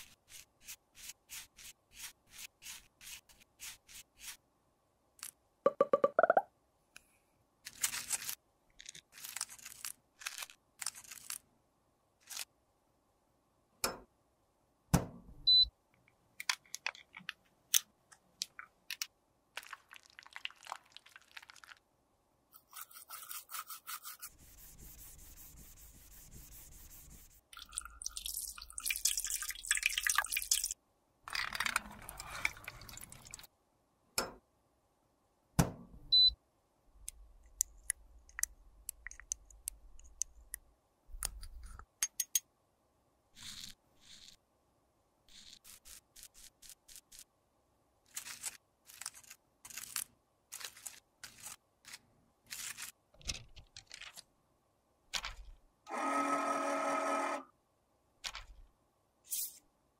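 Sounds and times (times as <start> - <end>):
small tools scraping cosmetics: 22.6 - 27.3, 43.4 - 44.4, 45.3 - 47.3, 48.1 - 53.0.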